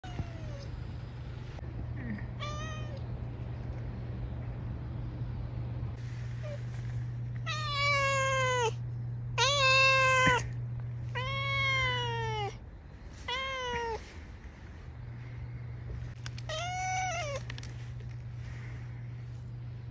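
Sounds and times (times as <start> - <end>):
steady low hum: 0.0 - 19.9
cat meowing: 7.4 - 8.8, 9.4 - 10.5, 11.1 - 12.6, 13.3 - 14.0, 16.4 - 17.5.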